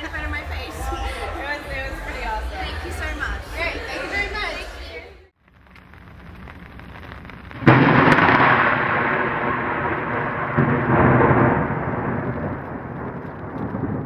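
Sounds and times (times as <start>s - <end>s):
thunder rumbling and cracking: 5.4s - 14.0s.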